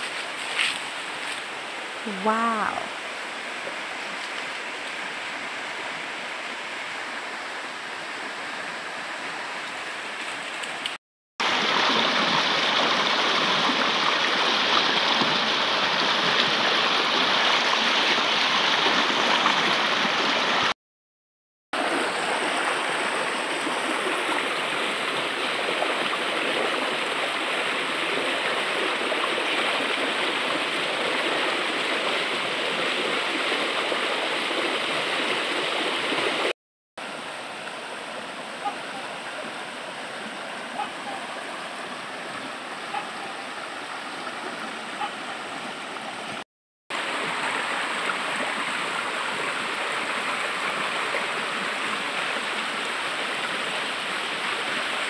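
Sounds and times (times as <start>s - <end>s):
stream rushing over rocks: 0.0s - 20.8s, 21.8s - 55.0s
water pouring down small cascade: 10.6s - 20.8s, 21.8s - 36.5s, 46.9s - 55.0s.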